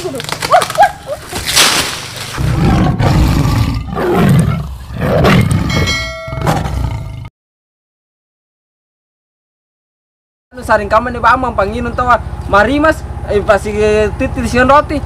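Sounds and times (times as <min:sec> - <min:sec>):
tiger roaring: 0:02.3 - 0:07.3
bell-like ding: 0:05.6 - 0:06.7.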